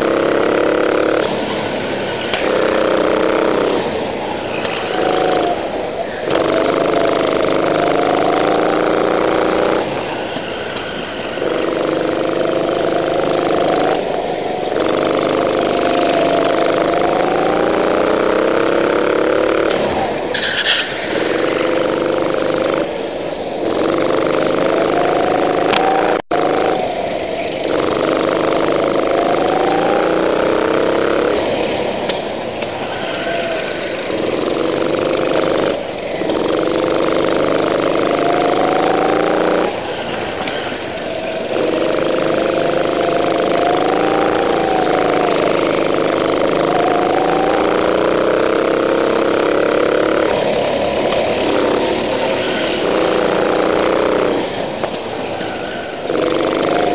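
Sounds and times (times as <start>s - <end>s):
go-kart engine revving: 0.0s - 56.9s.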